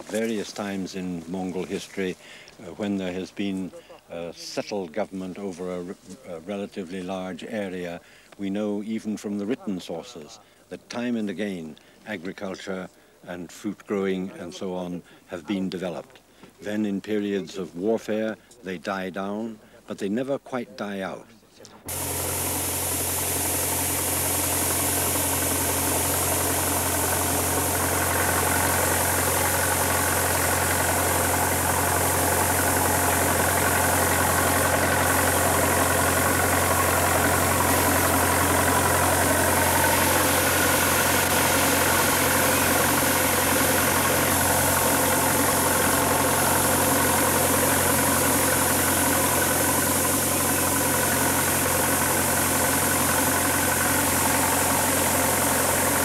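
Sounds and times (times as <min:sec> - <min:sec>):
constant hiss: 0:00.0 - 0:56.0
mechanical drone: 0:21.9 - 0:56.0.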